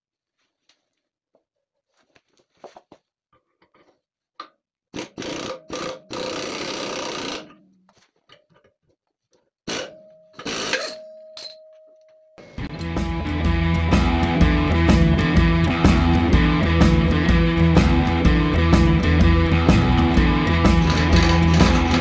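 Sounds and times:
pneumatic impact wrench bursts: 5.0s - 7.6s
hand tools clinking on metal: 20.7s - 22.0s.

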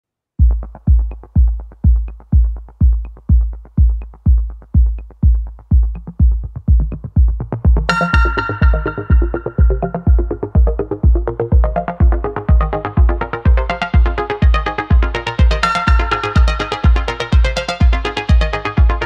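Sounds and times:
electronic music with kick drum: 0.4s - 19.0s
bright synth chord: 7.9s - 10.7s.

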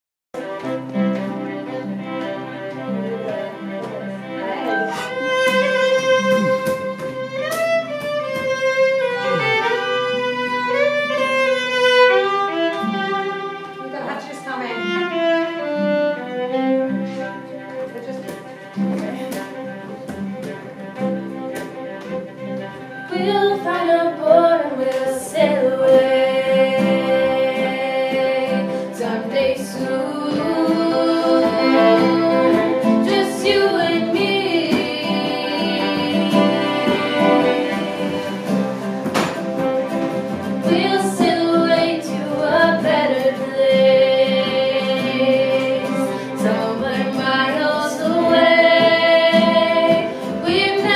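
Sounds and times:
acoustic guitar: 0.4s - 50.9s
fiddle: 0.4s - 50.9s
girls singing: 23.1s - 39.1s, 39.9s - 50.9s.

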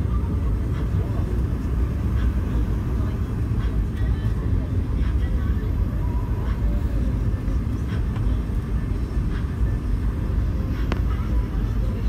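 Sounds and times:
airliner cabin rumble: 0.0s - 12.0s.

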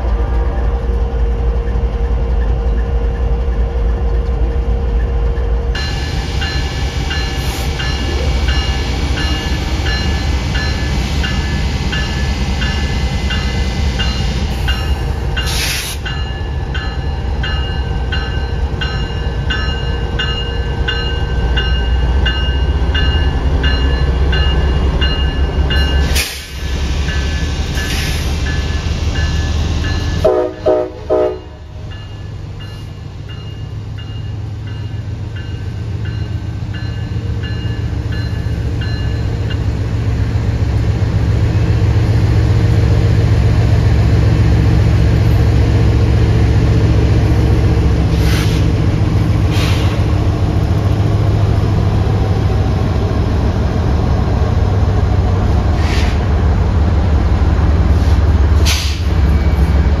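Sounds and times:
locomotive rumble: 0.0s - 60.0s
sharp hissing or clanking bursts: 15.4s - 16.2s, 26.0s - 29.2s, 48.1s - 48.8s, 49.4s - 50.1s, 55.7s - 56.3s, 58.0s - 59.2s
train horn blasts: 30.2s - 31.7s.

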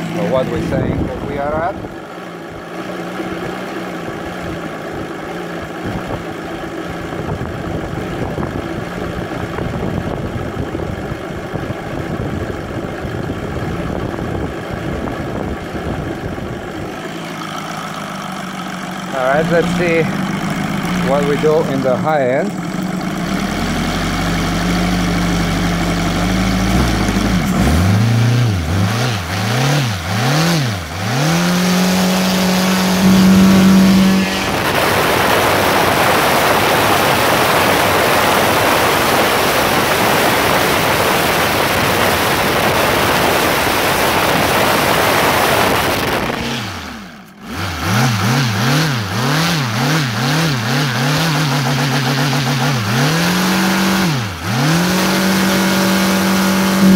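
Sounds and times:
radial model engine running: 16.8s - 26.2s.

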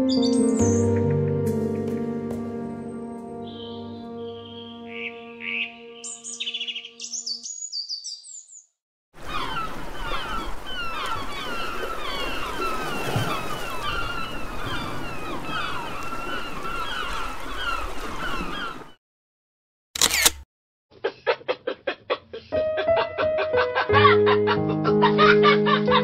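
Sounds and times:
music with high chirping notes: 0.0s - 7.8s
gulls calling: 3.4s - 8.5s, 9.2s - 19.0s.

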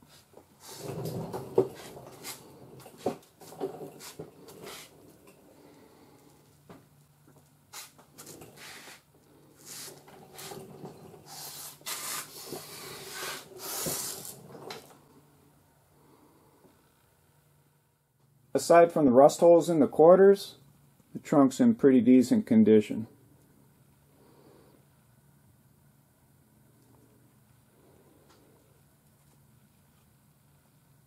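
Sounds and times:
rustling and scraping: 0.0s - 15.2s
faint steady hum: 0.0s - 31.0s
bursts of hiss: 11.3s - 14.4s.

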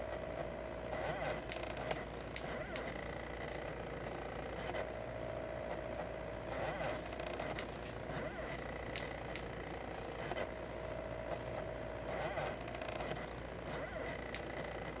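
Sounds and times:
stepper motor whine: 0.0s - 15.0s
sharp clicks: 1.0s - 3.0s, 6.5s - 9.5s, 12.3s - 14.9s.

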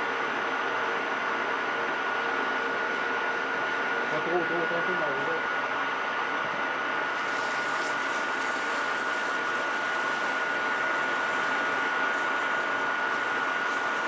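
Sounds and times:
metal lathe whining: 6.8s - 14.0s.

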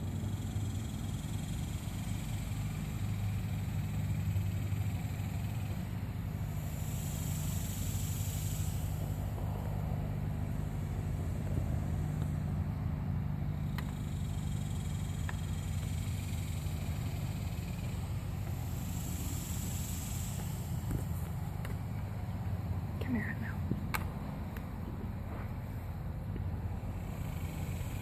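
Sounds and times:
low mechanical hum: 0.0s - 28.0s
faint ticks: 13.6s - 22.2s.

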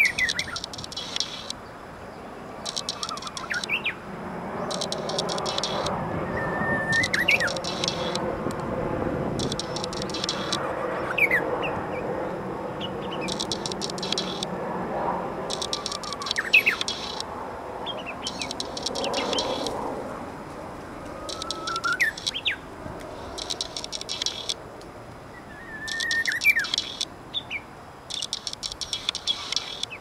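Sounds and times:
high rapid bird ticking: 0.0s - 1.6s, 2.6s - 11.8s, 12.8s - 14.7s, 15.3s - 20.0s, 21.0s - 24.6s, 25.6s - 30.0s
bush warbler singing: 0.0s - 4.0s, 4.6s - 8.6s, 9.3s - 14.6s, 15.4s - 19.8s, 20.7s - 24.6s, 25.3s - 30.0s.

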